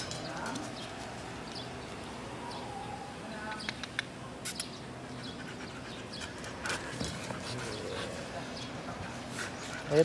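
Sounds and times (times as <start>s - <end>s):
sharp clicks: 3.5s - 4.8s.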